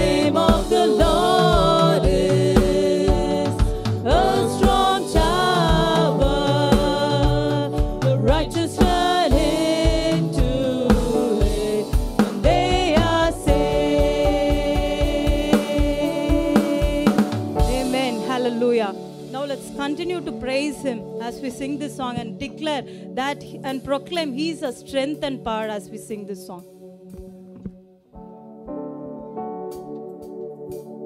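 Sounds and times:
women singing gospel song: 0:00.0 - 0:18.3
musical accompaniment with steady beat: 0:00.0 - 0:22.5, 0:26.5 - 0:31.0.

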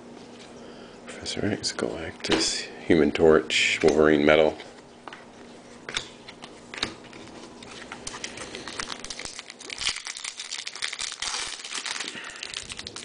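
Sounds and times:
foil wrapper crinkling: 0:07.1 - 0:13.0.

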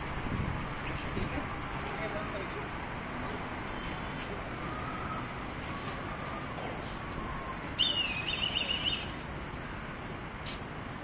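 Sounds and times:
steady outdoor background noise: 0:00.0 - 0:11.0
bird chattering call: 0:07.8 - 0:09.1.

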